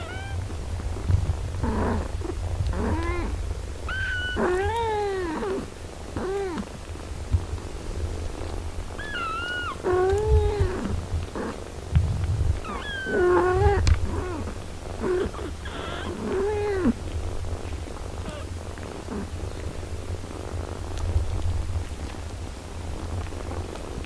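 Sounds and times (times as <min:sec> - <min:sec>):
kittens mewing: 0:00.0 - 0:00.5, 0:01.6 - 0:06.8, 0:09.0 - 0:11.6, 0:12.6 - 0:17.2, 0:18.2 - 0:19.3
cat purring: 0:00.0 - 0:24.0.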